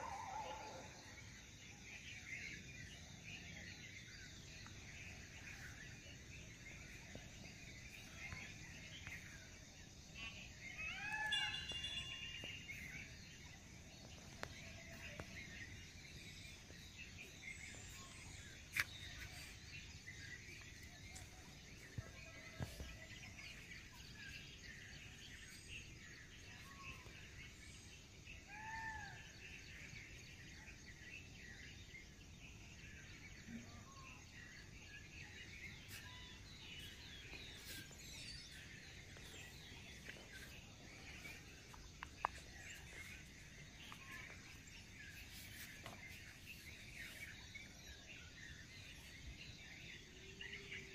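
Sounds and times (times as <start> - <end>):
birds chirping: 0.0 - 50.9
loud arched bird call: 10.8 - 12.7.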